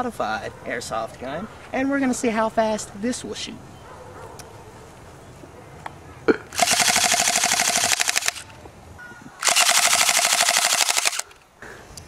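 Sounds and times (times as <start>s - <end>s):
airsoft pistol automatic bursts: 6.6s - 8.5s, 9.4s - 11.4s.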